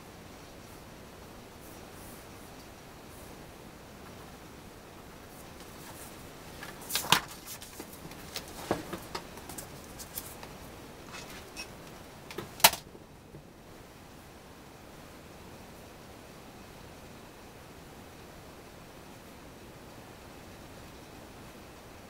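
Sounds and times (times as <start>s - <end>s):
paper rustling: 5.3s - 11.6s.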